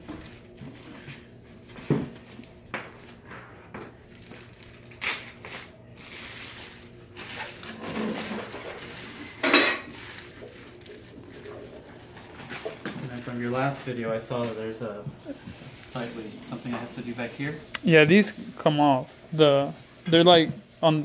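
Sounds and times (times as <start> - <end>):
plastic bag crinkling: 4.1 - 14.8.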